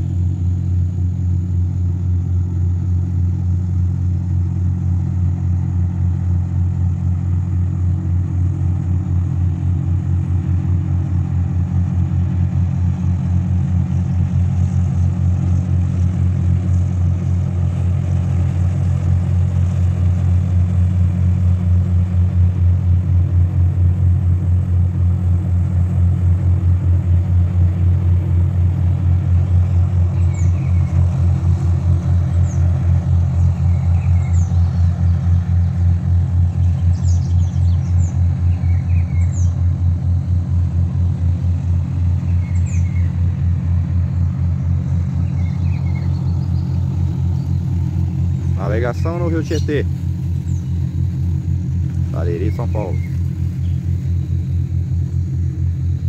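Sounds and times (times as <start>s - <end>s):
towboat diesel engine droning: 0.0s - 56.0s.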